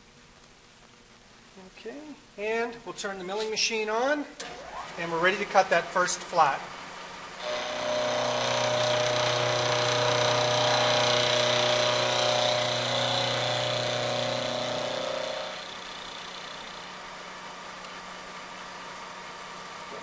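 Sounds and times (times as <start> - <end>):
milling machine motor hum: 6.6 - 20.0.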